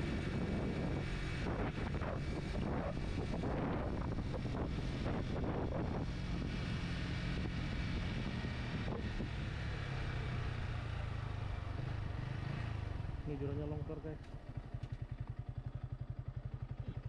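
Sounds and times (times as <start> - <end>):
wind rushing over microphone: 0.0 - 9.7
motorcycle engine cruising: 0.0 - 17.0.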